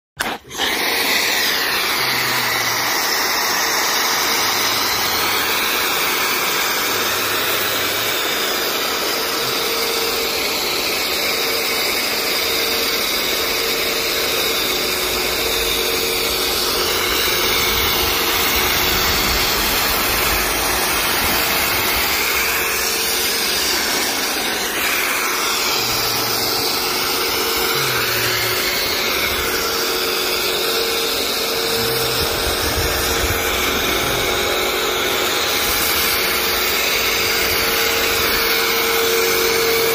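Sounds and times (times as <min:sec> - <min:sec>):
pump whining: 0:00.2 - 0:39.9
pressure washer spray hissing: 0:14.7 - 0:39.9.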